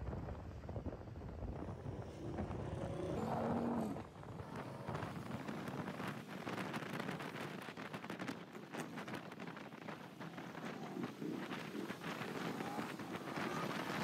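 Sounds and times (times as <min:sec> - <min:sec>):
motorcycle engine and road noise: 0:00.0 - 0:14.0
wind rushing over microphone: 0:00.0 - 0:14.0.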